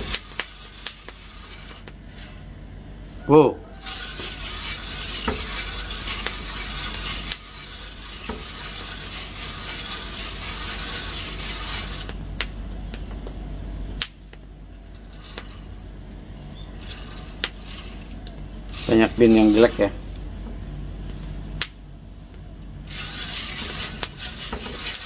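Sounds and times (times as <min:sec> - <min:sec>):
coffee beans rattling in drum: 0:00.0 - 0:01.9, 0:03.8 - 0:12.1, 0:16.6 - 0:20.0, 0:22.9 - 0:25.0.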